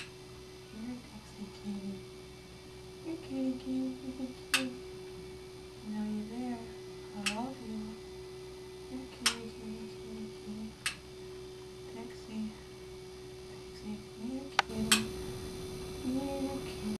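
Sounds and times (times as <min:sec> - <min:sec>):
electric hum: 0:00.0 - 0:17.0
lamp switch clicks: 0:10.8 - 0:11.1, 0:14.6 - 0:15.1.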